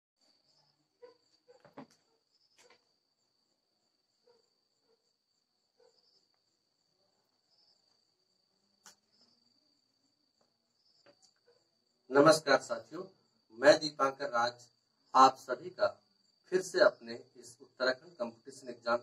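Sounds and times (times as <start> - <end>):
high-pitched insect trill: 0.2 - 19.0
faint knocks: 1.5 - 2.0.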